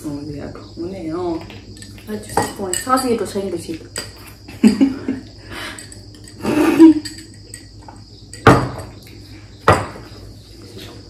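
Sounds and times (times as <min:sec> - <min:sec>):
glasses knocking on a table: 0:07.0 - 0:09.0, 0:09.6 - 0:10.1.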